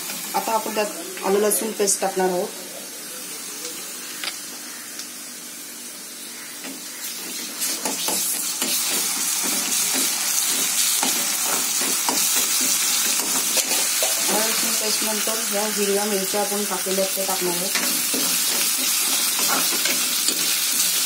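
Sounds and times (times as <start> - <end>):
onions sizzling in hot oil: 0.0 - 2.5, 3.3 - 21.0
spatula scraping and tapping pan: 7.8 - 14.4, 17.7 - 21.0.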